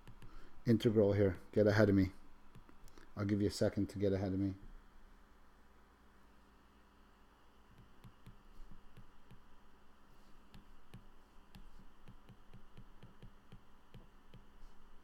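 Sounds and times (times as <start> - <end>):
steady low hum: 0.0 - 15.0
stylus tapping on glass screen: 7.7 - 9.5, 10.5 - 14.5.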